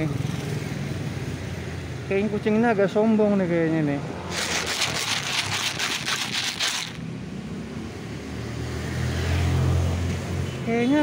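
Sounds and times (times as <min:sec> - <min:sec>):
passing vehicle hum: 0:03.6 - 0:10.3
kibble rattling in plastic container: 0:04.3 - 0:07.0.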